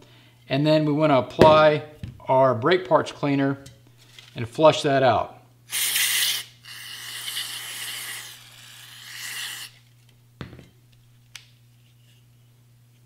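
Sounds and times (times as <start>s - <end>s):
aerosol can spraying: 5.7s - 9.8s.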